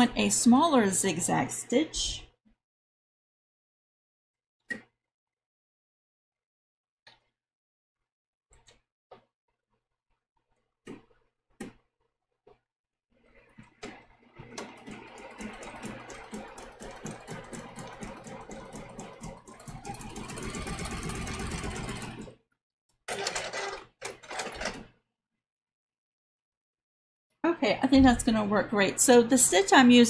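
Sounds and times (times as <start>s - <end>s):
sewing machine running: 14.3s - 22.4s, 23.1s - 24.9s.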